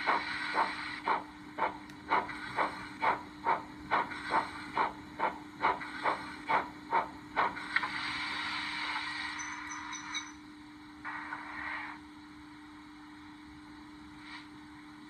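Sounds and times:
steam hiss: 0.0s - 10.2s, 11.0s - 12.0s
steam locomotive exhaust chuffs: 0.0s - 10.4s
faint steady hum: 0.0s - 15.0s.

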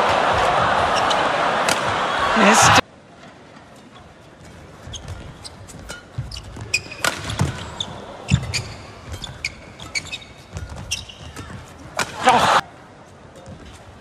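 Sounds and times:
racket hitting shuttlecock: 1.6s - 1.9s, 6.7s - 8.6s, 11.9s - 12.4s
shoes squeaking on court: 3.8s - 12.1s.

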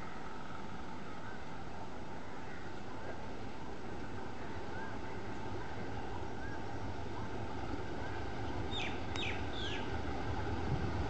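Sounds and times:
diesel locomotive rumbling: 0.0s - 11.0s
bird chirping: 8.7s - 9.9s
high falling bird calls: 8.7s - 9.9s.

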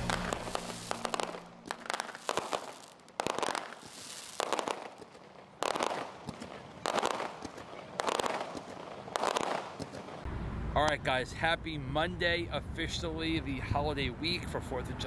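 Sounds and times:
fireworks bangs: 0.0s - 10.3s
fireworks crackling: 0.0s - 10.3s.

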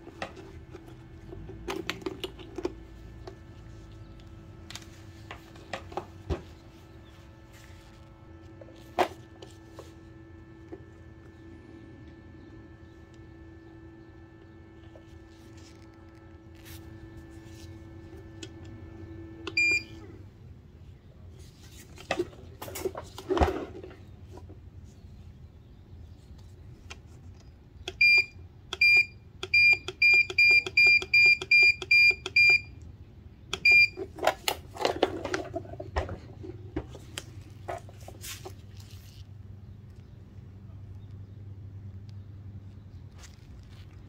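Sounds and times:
faint steady hum: 0.0s - 44.0s
handling knocks and rustle: 34.0s - 39.4s.

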